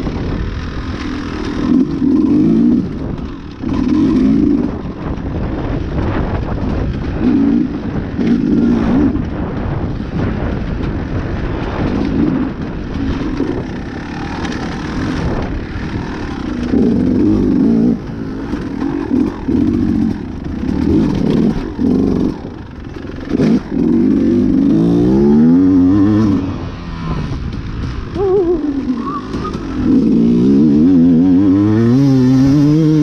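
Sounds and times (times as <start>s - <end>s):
dirt bike engine revving: 0.0s - 33.0s.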